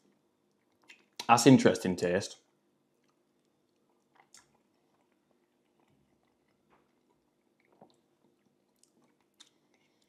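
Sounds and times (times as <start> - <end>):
mouth chewing smacks: 0.5 - 1.3, 3.0 - 10.0.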